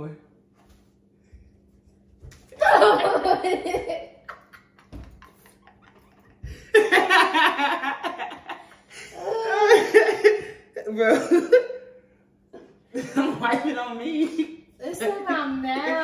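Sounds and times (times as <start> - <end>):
women laughing loudly: 2.6 - 10.6.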